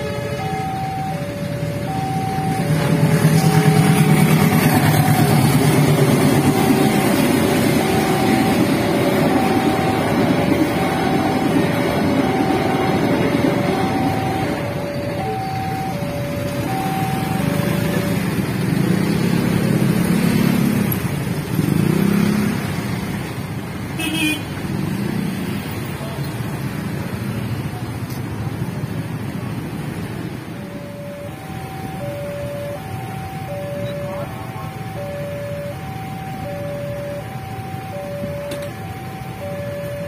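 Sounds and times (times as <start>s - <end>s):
level crossing two-tone alarm: 0.0s - 20.7s, 30.5s - 40.0s
freight train rumbling: 0.0s - 21.9s
vehicle engines starting: 0.0s - 23.9s, 24.6s - 40.0s.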